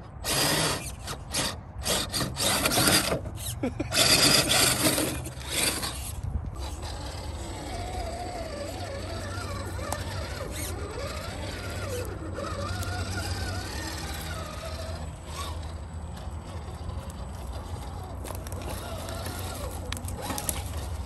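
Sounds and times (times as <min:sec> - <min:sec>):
rc car motor whining: 0:00.0 - 0:21.0
tyres scraping on wood: 0:00.0 - 0:21.0.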